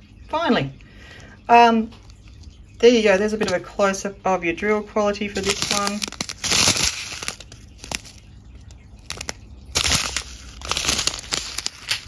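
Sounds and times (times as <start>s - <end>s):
plastic bag crinkling: 1.9s - 3.1s, 5.2s - 12.0s.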